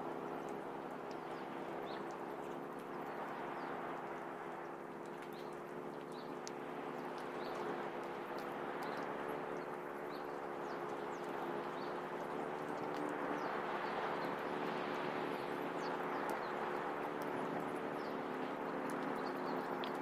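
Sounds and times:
low steady hum: 0:00.0 - 0:20.0
faint clicks: 0:00.4 - 0:04.2, 0:04.9 - 0:13.6, 0:14.2 - 0:20.0.

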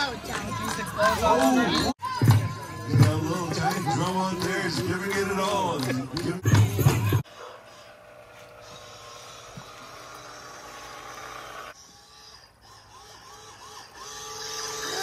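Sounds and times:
small motor whirring: 0:07.6 - 0:15.0.

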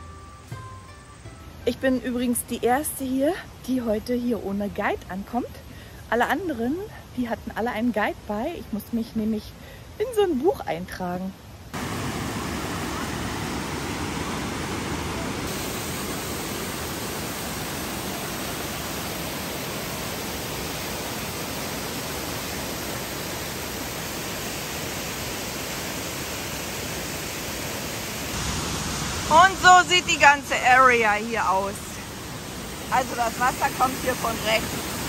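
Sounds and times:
river water rushing over rocks: 0:11.8 - 0:35.0
waterfall roaring: 0:11.8 - 0:35.0.

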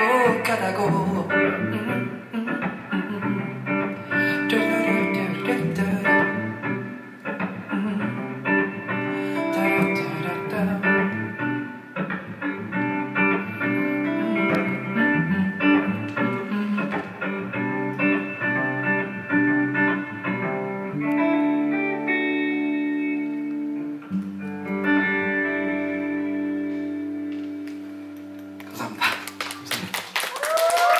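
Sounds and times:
guitar playing: 0:00.0 - 0:30.1.

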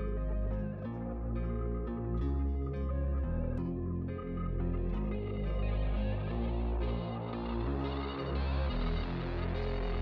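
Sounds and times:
sustained chords over deep bass: 0:00.0 - 0:10.0.

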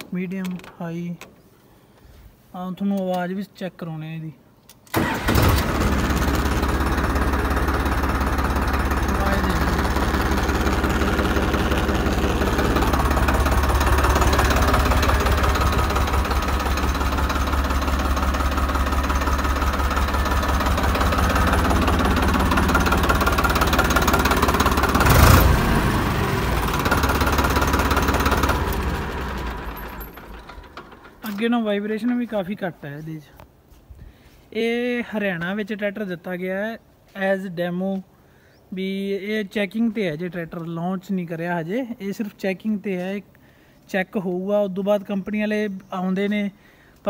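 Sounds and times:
diesel tractor engine idling: 0:04.9 - 0:32.6.

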